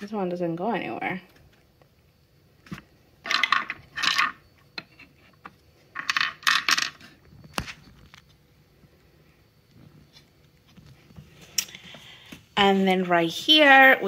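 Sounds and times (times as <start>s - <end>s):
wooden cylinders clattering: 3.2s - 7.2s.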